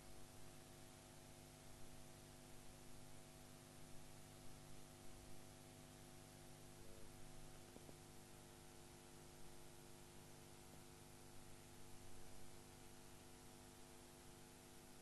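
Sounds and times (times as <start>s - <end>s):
faint electrical hum: 0.0s - 15.0s.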